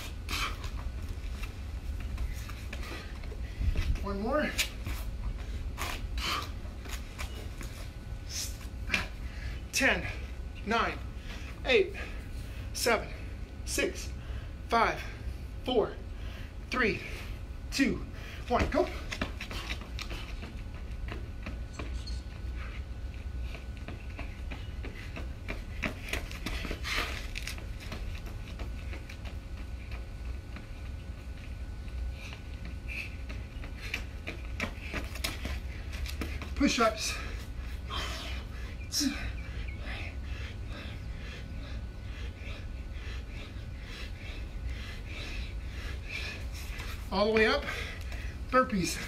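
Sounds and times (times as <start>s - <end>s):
man panting hard: 0.0s - 1.2s, 2.2s - 7.0s, 7.7s - 21.2s, 22.4s - 29.0s, 31.9s - 49.0s
running footsteps on concrete: 0.0s - 49.0s
steady low rumble: 0.0s - 49.0s.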